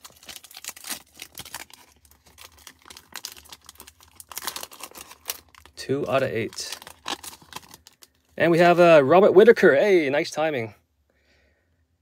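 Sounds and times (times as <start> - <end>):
foil wrapper tearing and crinkling: 0.0 - 8.2.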